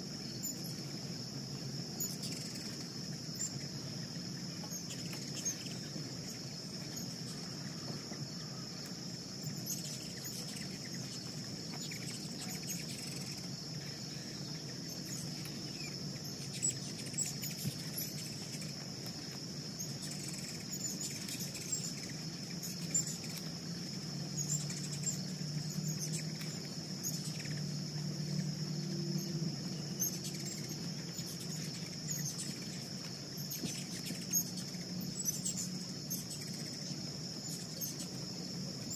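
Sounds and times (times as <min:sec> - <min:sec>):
high-pitched insect drone: 0:00.0 - 0:38.9
hummingbird chips and squeaks: 0:09.5 - 0:13.4.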